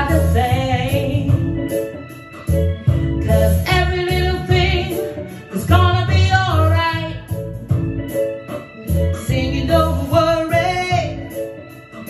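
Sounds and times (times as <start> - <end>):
woman singing into microphone: 0.0 - 1.7, 3.2 - 7.4, 9.1 - 11.4
reggae backing track with bass: 0.0 - 12.0.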